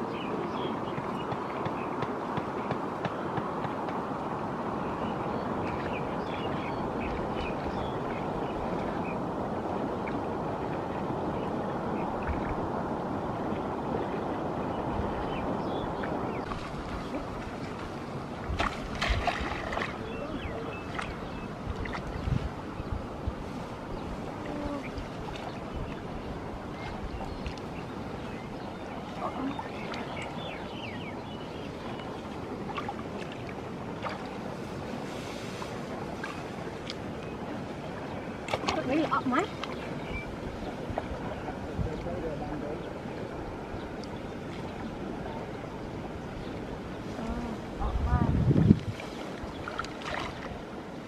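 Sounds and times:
wind noise on microphone: 2.1 - 31.8, 39.8 - 51.0.

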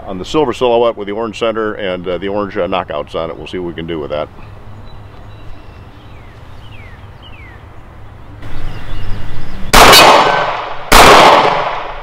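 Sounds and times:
pistol shot echoing: 9.7 - 12.0.

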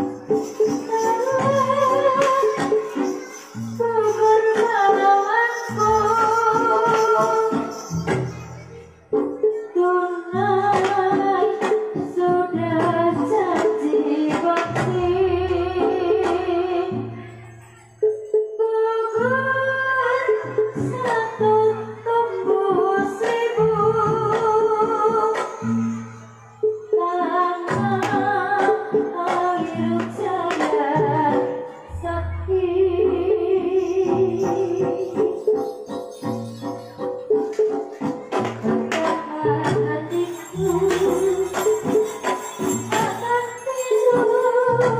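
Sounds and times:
woman singing: 0.0 - 8.2, 9.5 - 17.3, 18.6 - 25.8, 26.8 - 35.9, 38.4 - 44.9
gamelan music: 0.0 - 13.4, 14.8 - 44.9
metallophone notes: 31.6 - 38.0, 40.1 - 44.9
low bass: 31.9 - 33.6.

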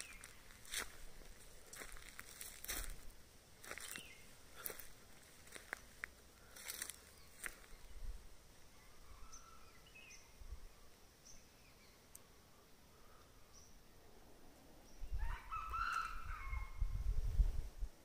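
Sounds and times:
faint bird chirps: 0.0 - 0.9, 6.5 - 16.8
junglefowl crowing: 15.2 - 16.8.

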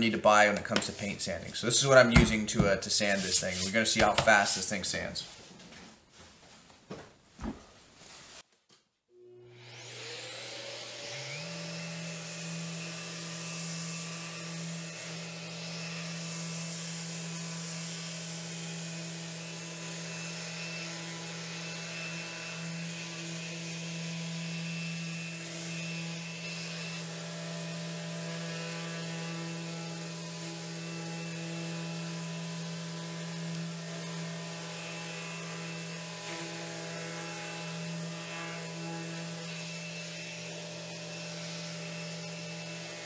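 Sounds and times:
electric orbital sander humming: 9.2 - 43.0.

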